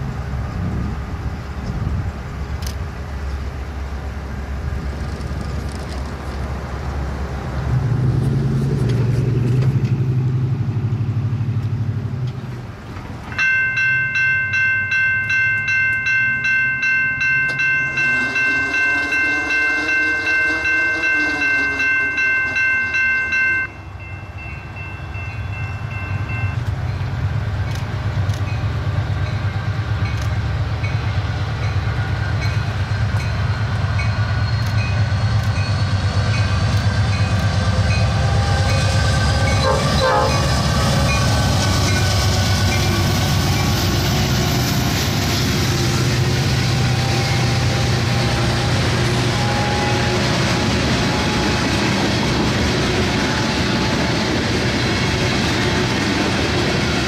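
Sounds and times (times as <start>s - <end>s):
diesel locomotives rumbling: 0.0s - 57.0s
bell ringing: 13.3s - 26.6s
faint train horn: 17.9s - 23.8s, 38.0s - 42.8s, 46.7s - 52.2s.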